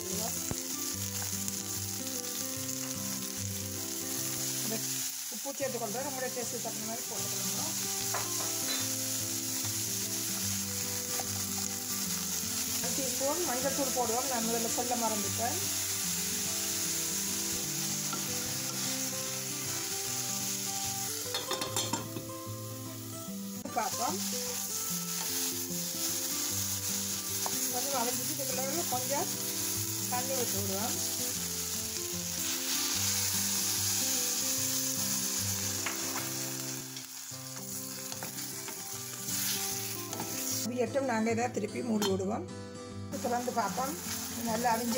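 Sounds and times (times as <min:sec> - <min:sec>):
vegetables sizzling in hot oil: 0:00.0 - 0:41.2, 0:43.1 - 0:44.9
metal lid clattering on pot: 0:21.3 - 0:22.2.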